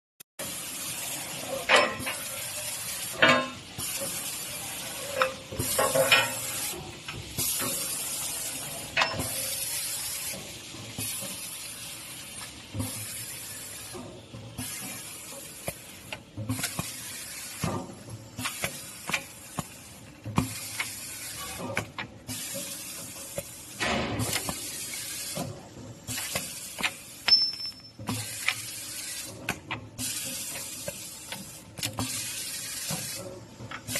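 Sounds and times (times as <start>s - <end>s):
sharp metal clanks: 27.3s - 28.0s.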